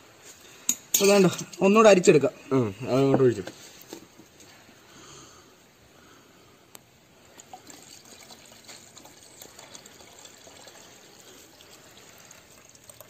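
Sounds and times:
liquid trickling: 7.2s - 13.0s.

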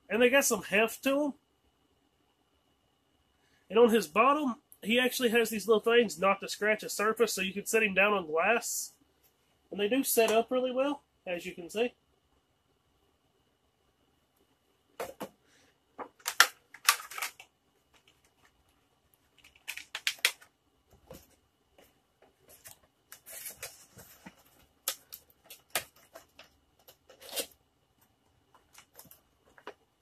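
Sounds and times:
plastic packaging crinkling: 16.0s - 20.5s, 22.4s - 27.6s.

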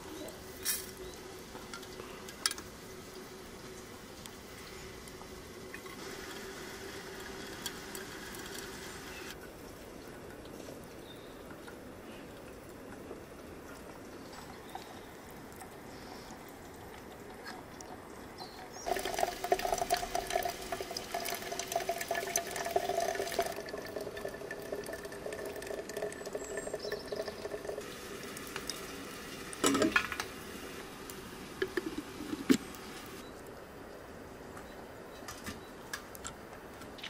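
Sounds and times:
water pouring into teapot: 5.1s - 9.4s, 11.5s - 33.2s.

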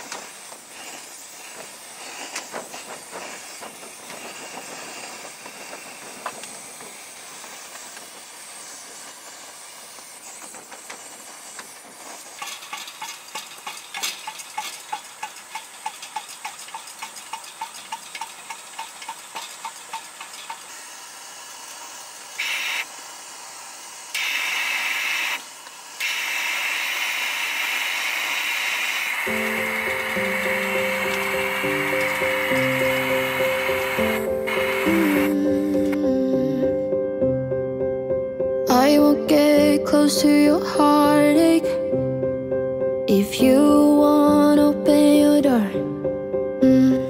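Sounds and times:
lantern hand pump strokes: 0.0s - 36.0s
pressure lantern hissing: 0.0s - 37.0s.

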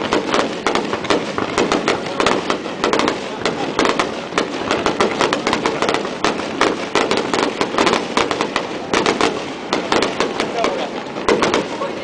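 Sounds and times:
fireworks crackling pops: 0.0s - 12.0s.

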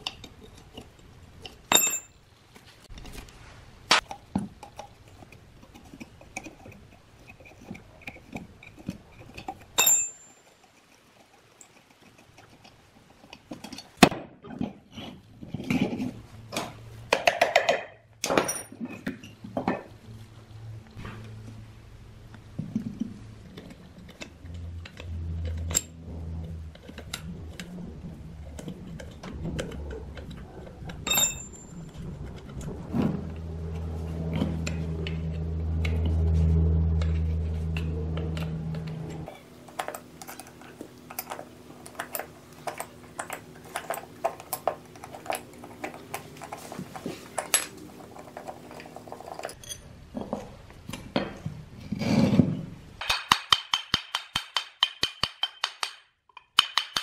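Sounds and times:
wrench clinking and scraping on metal: 0.0s - 2.2s, 4.0s - 16.2s, 24.1s - 26.0s, 31.0s - 32.0s, 37.0s - 50.4s
low steady hum: 0.0s - 53.2s
small metal clicks and knocks: 37.0s - 51.5s.

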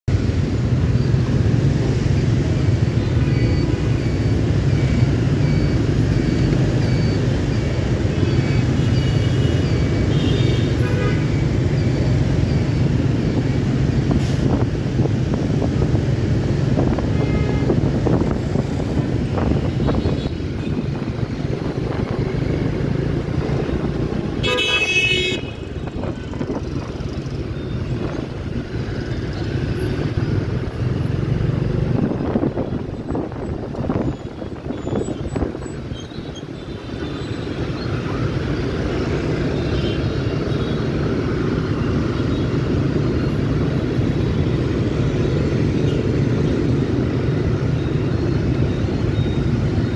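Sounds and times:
traffic engines rumbling: 0.0s - 49.9s
short beeps: 3.2s - 10.1s
vehicle horns tooting: 9.0s - 11.4s, 24.4s - 25.8s.

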